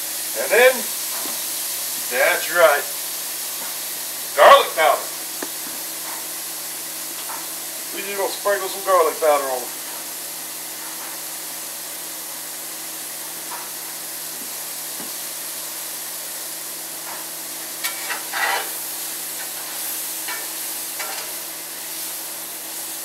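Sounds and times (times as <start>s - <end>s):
mushrooms sizzling in butter: 0.0s - 23.0s
utensil scraping and clinking pan: 17.8s - 18.8s.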